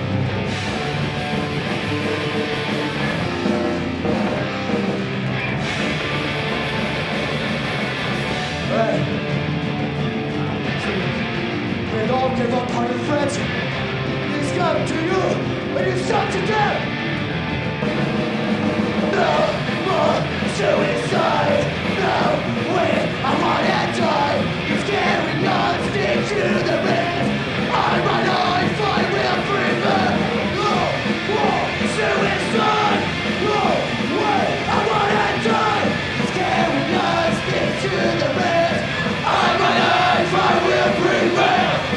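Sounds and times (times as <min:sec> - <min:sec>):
punk rock band playing live: 0:00.0 - 0:41.9
shouted vocals: 0:14.4 - 0:16.9, 0:19.1 - 0:41.9.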